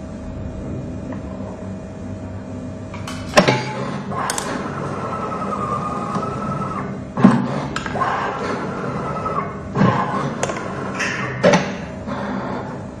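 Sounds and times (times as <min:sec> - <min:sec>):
motor whine: 0:03.9 - 0:13.0.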